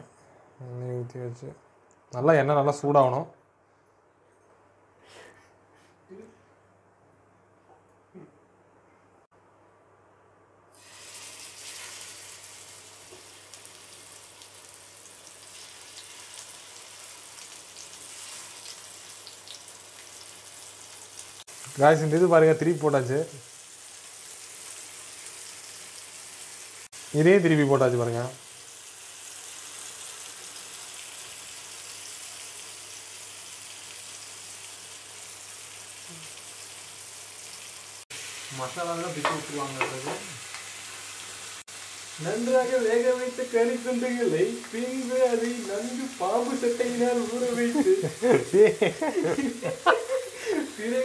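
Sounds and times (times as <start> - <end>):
chicken frying in hot oil: 10.8 - 51.0.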